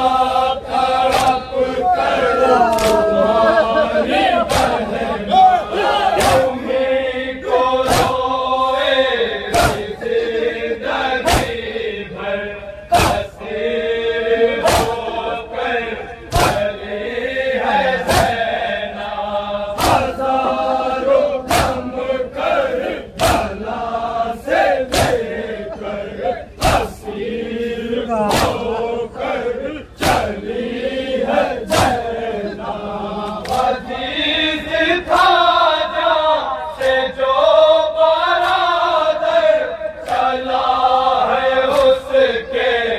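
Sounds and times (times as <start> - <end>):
men chanting together: 0.0 - 42.9
hands slapping on chests: 1.0 - 1.5, 2.7 - 3.1, 4.4 - 4.9, 6.1 - 6.6, 7.9 - 8.2, 9.5 - 9.9, 11.2 - 11.6, 14.6 - 15.0, 16.3 - 16.7, 19.8 - 20.2, 21.5 - 21.8, 23.2 - 23.6, 24.9 - 25.2, 28.3 - 28.6, 33.2 - 33.8, 36.8 - 37.0, 40.0 - 40.3, 41.7 - 42.0.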